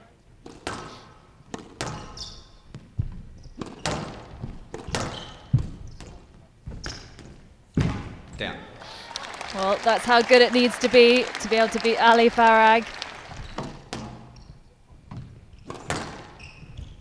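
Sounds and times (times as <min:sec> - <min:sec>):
squash ball knocks echoing: 0:13.4 - 0:14.4, 0:15.2 - 0:16.3.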